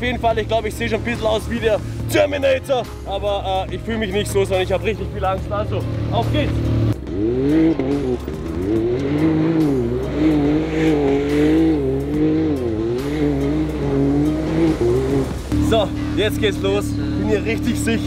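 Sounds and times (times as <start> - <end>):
buggy engine revving: 0.0 - 18.0
tires sliding on gravel: 12.6 - 18.0.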